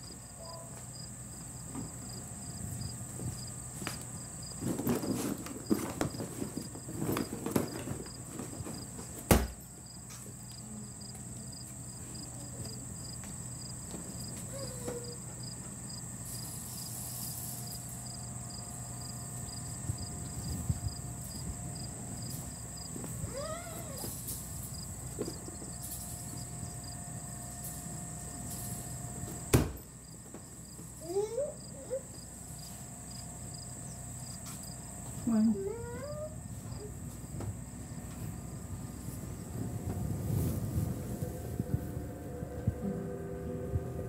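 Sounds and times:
low hum: 38.2s - 44.0s.

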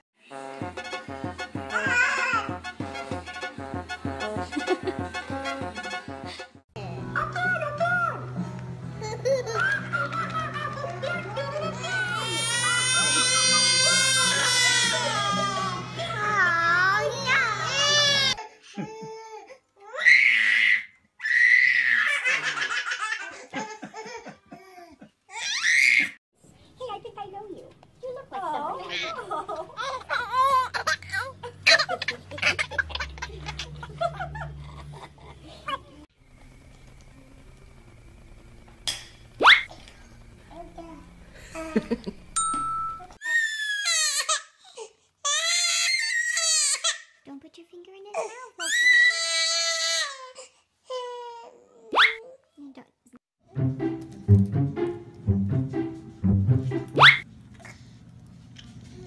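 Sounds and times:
baby crying: 1.7s - 2.5s, 11.6s - 22.6s
babies giggling: 9.0s - 15.8s, 28.6s - 36.1s
babies shrieking: 11.7s - 15.8s, 19.9s - 22.5s, 25.3s - 26.2s, 48.6s - 50.2s.

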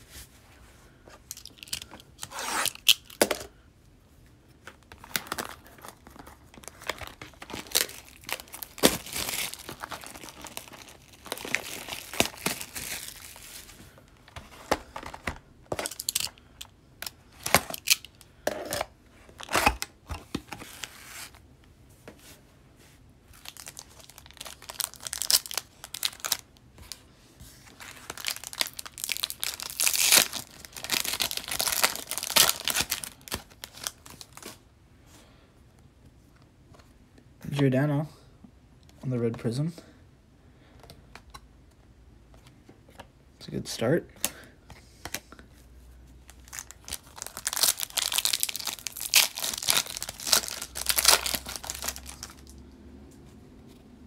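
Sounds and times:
packaging tearing and crinkling: 1.3s - 3.2s, 5.0s - 13.7s, 14.8s - 16.4s, 17.0s - 18.2s, 23.3s - 27.0s, 27.7s - 34.6s, 46.3s - 52.6s
wrapping rustling: 4.8s - 16.4s, 23.3s - 34.6s, 46.3s - 52.6s.

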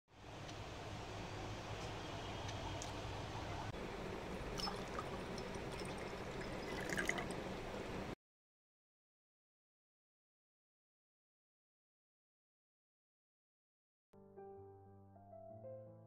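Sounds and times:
water poured into glass: 4.6s - 7.4s.

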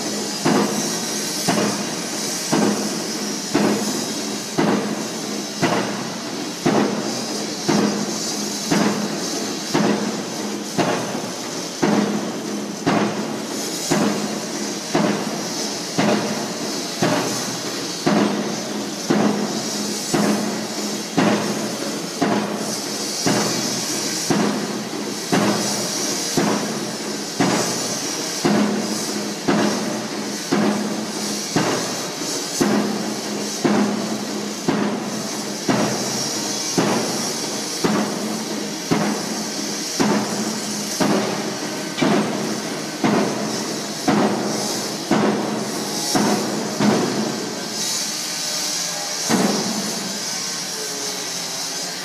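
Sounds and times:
rig engine hum and hiss: 0.0s - 52.0s
pile driver hammer striking: 42.0s - 43.4s, 44.1s - 44.5s, 45.1s - 47.5s, 49.3s - 50.0s.

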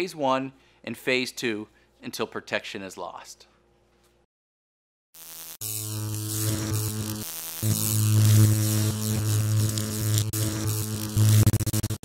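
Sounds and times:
electric buzzing hum with crackle: 5.2s - 12.0s.

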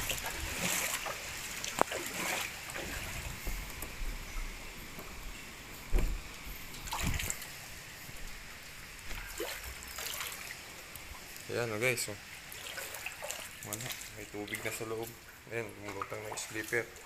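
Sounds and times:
dull knocks on door: 5.9s - 6.2s
footsteps splashing through water: 12.6s - 14.8s.

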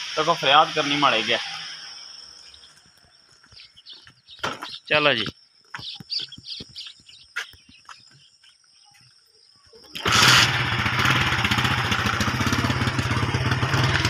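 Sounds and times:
motorcycle engine starting and idling: 9.8s - 14.0s.

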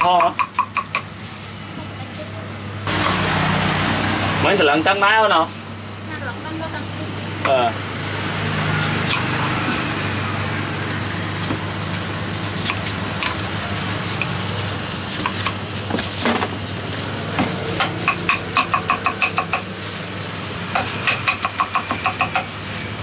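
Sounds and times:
knife chopping on wooden board: 0.0s - 1.1s, 17.4s - 19.7s, 20.8s - 22.5s.

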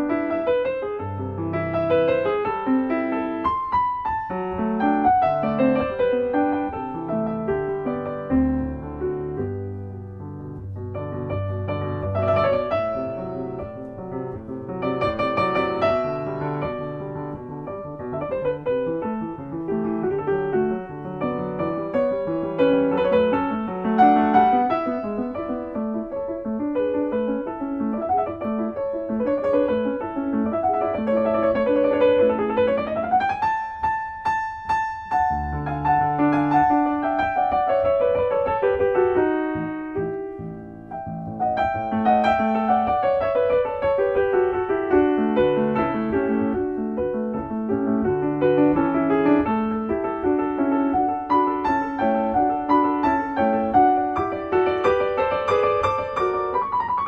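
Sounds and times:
lively piano music: 0.0s - 57.0s.

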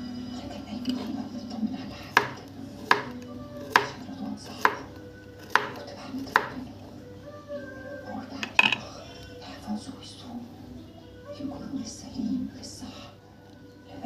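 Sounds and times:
knife chopping on wooden board: 2.1s - 6.6s.

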